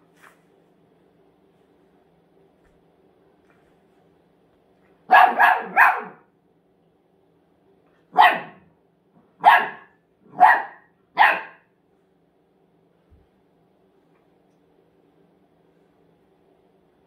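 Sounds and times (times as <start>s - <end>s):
puppy barking: 5.1s - 6.3s, 8.1s - 8.7s, 9.4s - 11.7s.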